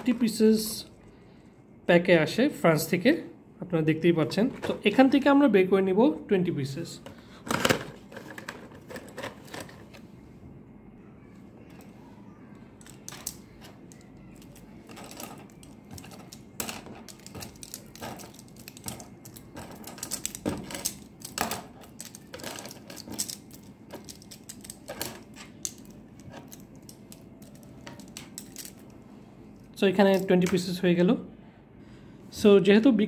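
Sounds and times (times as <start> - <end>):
plastic pens clicking together: 12.8 - 28.9.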